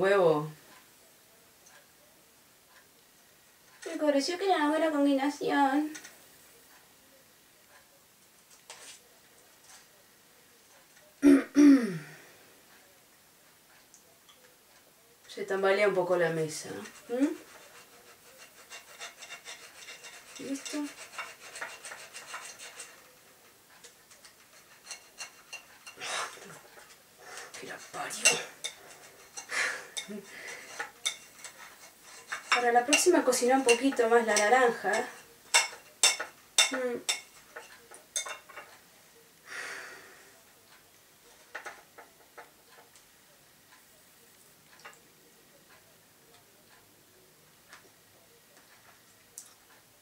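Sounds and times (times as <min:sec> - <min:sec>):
cutlery scraping a plate: 0:08.4 - 0:09.0, 0:15.8 - 0:38.8, 0:40.7 - 0:43.0
knife sawing through orange: 0:16.9 - 0:23.1.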